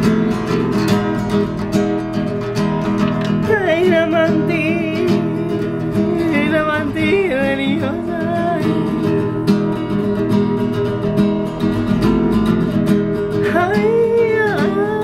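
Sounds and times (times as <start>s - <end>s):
strummed acoustic guitar: 0.0s - 15.0s
woman singing: 3.3s - 10.3s, 13.3s - 15.0s.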